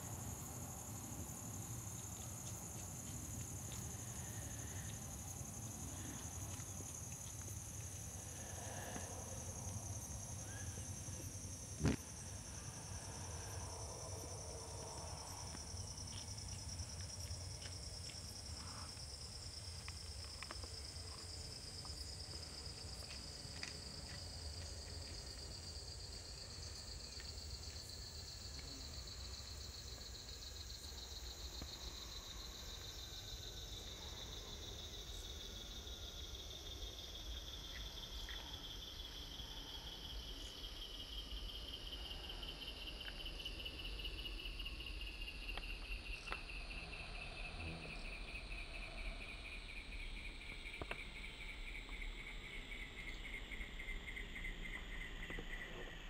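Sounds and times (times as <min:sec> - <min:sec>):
high-pitched insect trill: 0:00.0 - 0:56.0.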